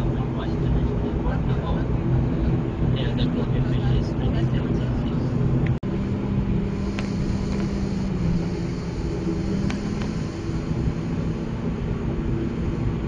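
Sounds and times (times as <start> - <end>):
turboprop engines droning: 0.0 - 13.0.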